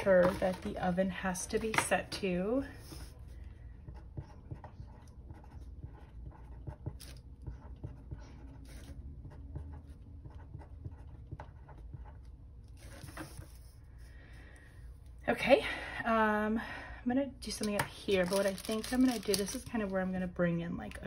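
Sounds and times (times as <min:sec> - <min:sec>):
pen scratching on paper: 0:01.6 - 0:14.1.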